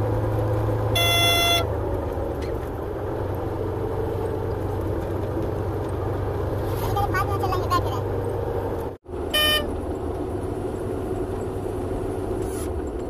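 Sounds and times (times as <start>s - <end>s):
vehicle engine and road noise: 0.0s - 13.0s
horn blast: 0.9s - 1.8s, 9.3s - 9.7s.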